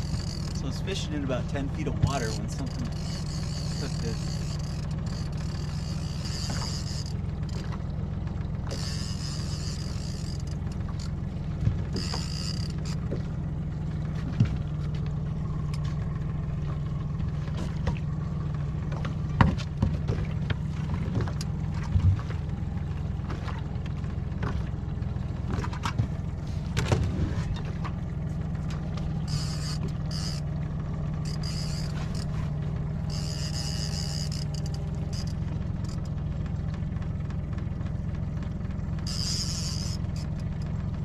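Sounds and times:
fishing reel buzzing: 0.0 - 7.8, 8.6 - 13.2, 29.1 - 36.2, 39.0 - 40.6
outboard motor humming: 0.0 - 41.0.

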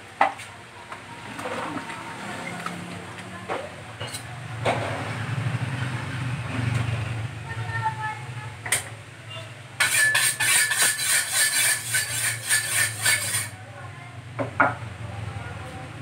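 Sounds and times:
metal kitchenware scraping a dish: 9.8 - 13.6.

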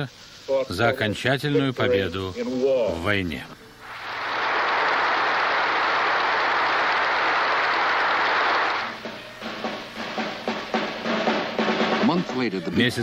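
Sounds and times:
crowd applauding: 3.9 - 9.9
music with drums: 8.8 - 13.0.

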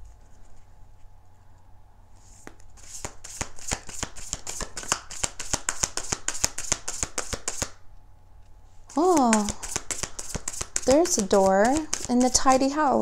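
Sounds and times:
cards being shuffled: 2.2 - 7.8, 8.9 - 12.8.

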